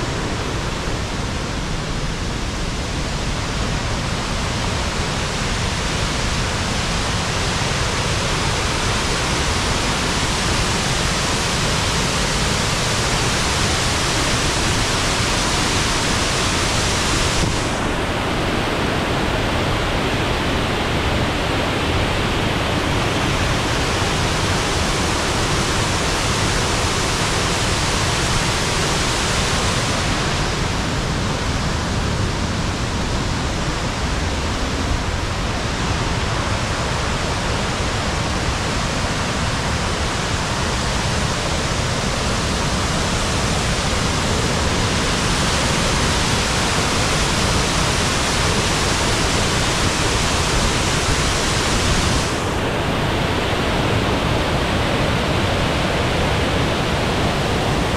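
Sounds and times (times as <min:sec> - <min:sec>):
waterfall rushing: 0:00.0 - 0:57.9.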